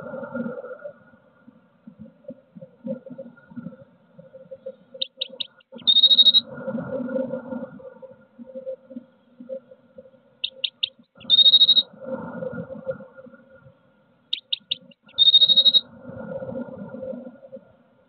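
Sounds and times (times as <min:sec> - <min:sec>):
bird song with trill: 0:05.0 - 0:06.4, 0:10.4 - 0:11.9, 0:14.3 - 0:15.8.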